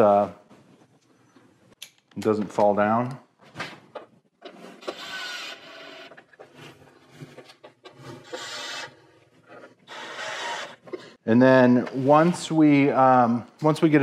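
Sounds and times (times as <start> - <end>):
cordless drill driving bolts: 4.5 - 6.2, 8.1 - 9.0, 9.9 - 11.0.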